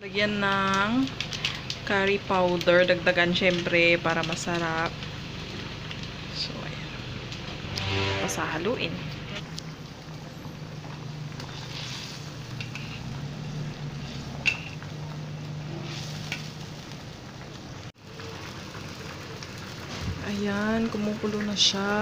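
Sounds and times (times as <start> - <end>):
sauce boiling and bubbling: 0.0 - 7.8, 9.4 - 22.0
metal spatula stirring: 11.4 - 13.2.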